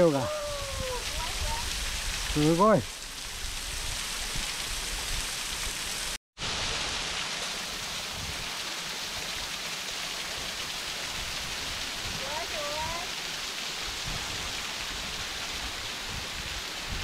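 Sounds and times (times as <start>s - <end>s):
waterfall roaring: 0.0s - 1.7s.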